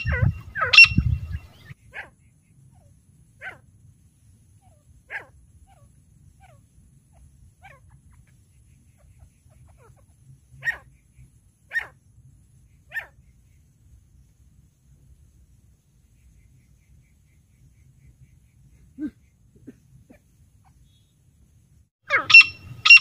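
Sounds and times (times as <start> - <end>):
francolin calling: 0.0 - 3.6, 22.1 - 23.0.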